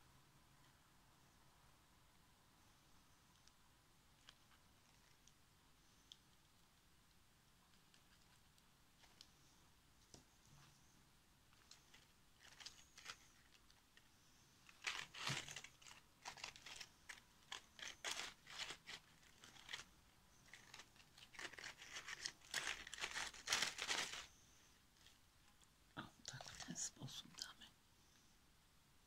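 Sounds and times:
dry plants crackling and crinkling: 11.6s - 24.3s.

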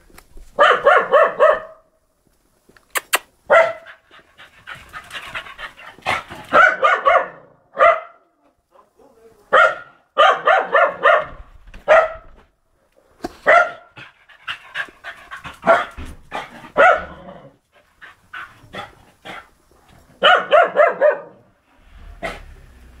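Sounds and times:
dog barking: 0.6s - 1.9s, 3.5s - 4.0s, 6.1s - 8.3s, 9.5s - 12.4s, 13.4s - 14.0s, 15.6s - 17.4s, 20.2s - 21.5s.

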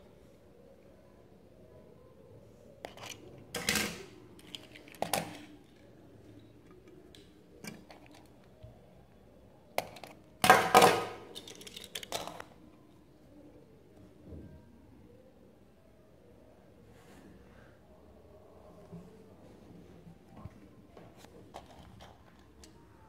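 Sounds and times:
toy cars clicking and knocking: 2.9s - 5.6s, 9.8s - 12.5s.

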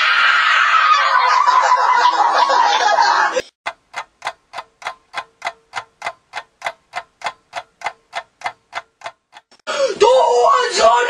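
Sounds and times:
clock ticking: 3.7s - 9.7s.

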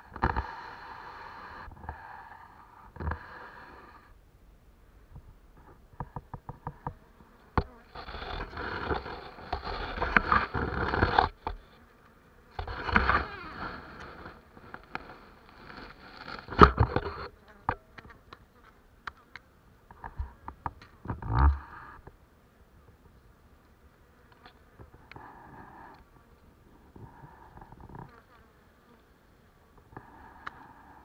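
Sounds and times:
bees buzzing: 6.6s - 19.4s.

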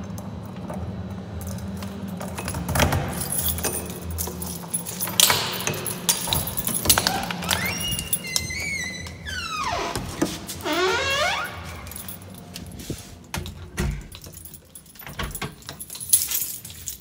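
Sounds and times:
jingling and clinking handling: 1.4s - 8.6s, 10.5s - 17.0s.

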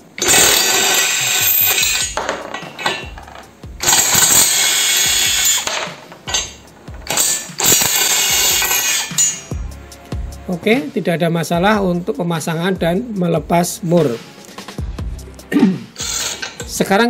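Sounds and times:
cordless impact wrench running: 0.2s - 2.2s, 3.8s - 9.4s.

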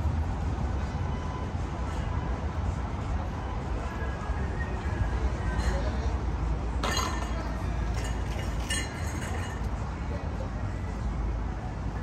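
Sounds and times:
low street rumble: 0.0s - 12.0s.

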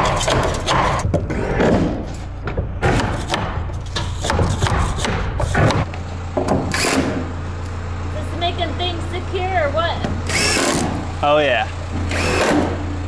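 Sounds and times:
steady low hum: 0.0s - 13.0s
knocks against wooden framing: 4.2s - 7.2s.

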